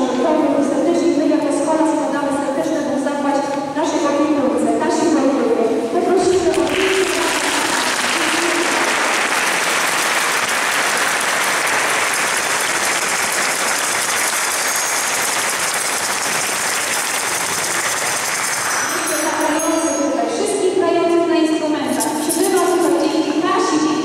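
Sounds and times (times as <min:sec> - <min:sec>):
audience applauding: 0:06.3 - 0:19.1.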